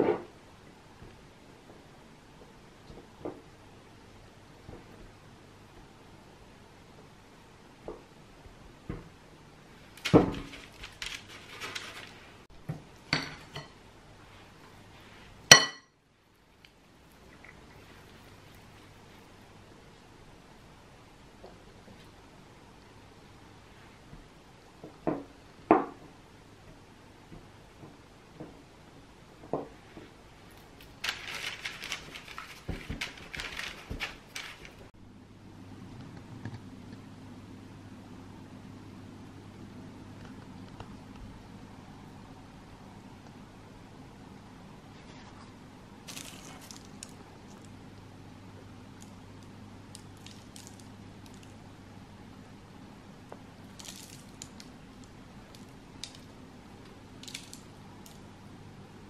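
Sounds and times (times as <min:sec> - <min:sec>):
baking paper crinkling: 0:09.8 - 0:12.5, 0:16.5 - 0:19.4, 0:30.4 - 0:34.9, 0:45.0 - 0:47.8, 0:49.9 - 0:51.6, 0:53.7 - 0:56.4.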